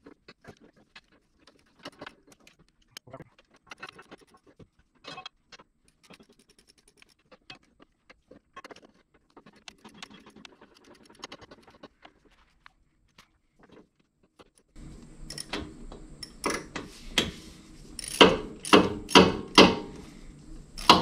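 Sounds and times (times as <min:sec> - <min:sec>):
wrench clicking on bolts: 0:15.2 - 0:16.8, 0:18.0 - 0:19.9, 0:20.8 - 0:21.0.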